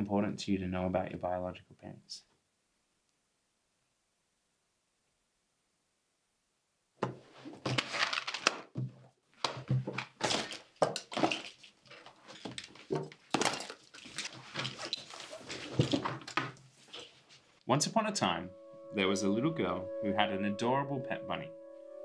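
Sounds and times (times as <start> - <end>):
objects knocking together: 7.0 - 16.6
fabric rustling: 11.5 - 17.6.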